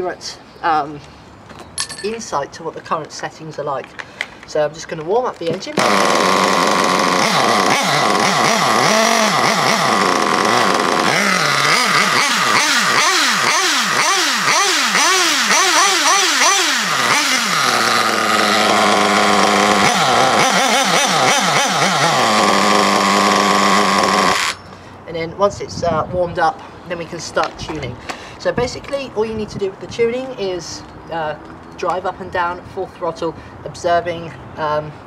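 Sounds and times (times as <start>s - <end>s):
nitro engine idling: 5.5s - 24.8s
engine revving blips: 5.7s - 24.8s.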